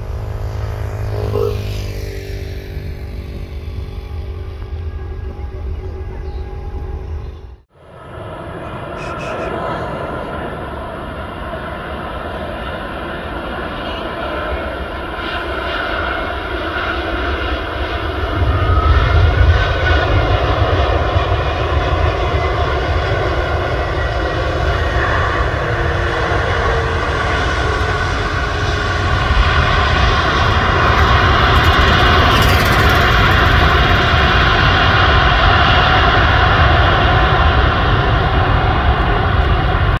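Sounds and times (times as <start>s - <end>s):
deep rumble: 0.0s - 12.2s, 25.4s - 40.0s
jet engines running: 0.0s - 40.0s.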